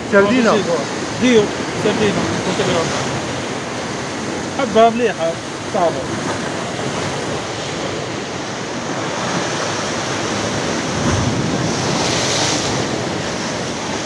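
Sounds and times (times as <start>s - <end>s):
surf washing on rocky shore: 0.0s - 14.0s
wind on microphone: 5.4s - 14.0s.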